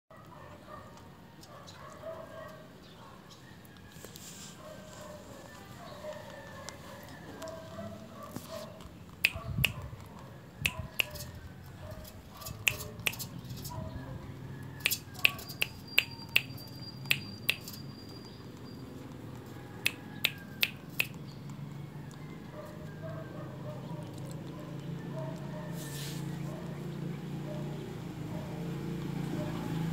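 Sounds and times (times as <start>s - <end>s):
finger snaps: 9.2s - 9.9s, 10.6s - 11.3s, 12.5s - 13.4s, 14.8s - 17.8s, 19.8s - 21.2s
puppies whining: 10.7s - 26.8s.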